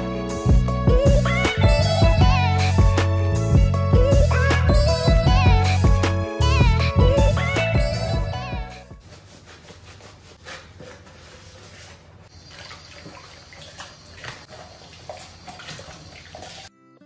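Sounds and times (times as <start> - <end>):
tap water running into sink: 12.4 - 16.7.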